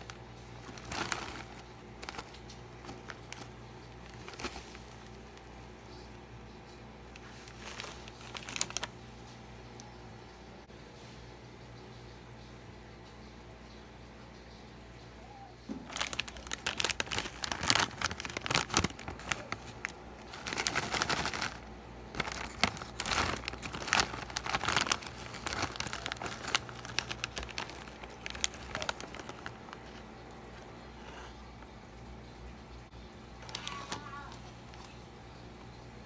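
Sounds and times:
plastic packet crinkling: 0:00.0 - 0:06.1, 0:07.1 - 0:09.9, 0:15.7 - 0:30.8.

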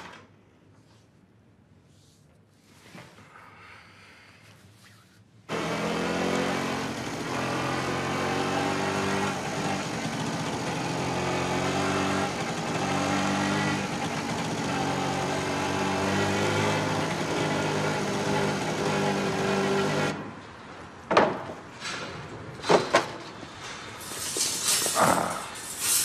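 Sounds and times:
moped engine running: 0:05.5 - 0:20.2.

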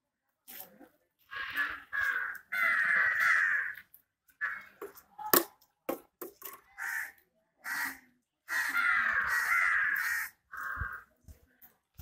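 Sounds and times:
crows cawing: 0:01.2 - 0:05.0, 0:06.7 - 0:11.1.

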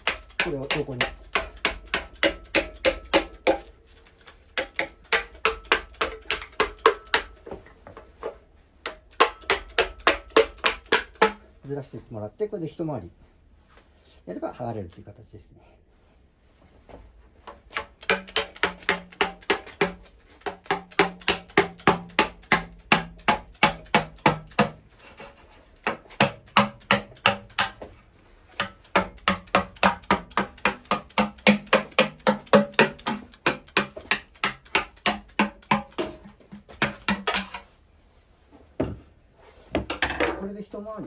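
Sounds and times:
mallet tapping metal scraper: 0:00.0 - 0:07.4, 0:08.8 - 0:11.4, 0:17.7 - 0:24.9, 0:25.8 - 0:27.8, 0:28.5 - 0:37.7.

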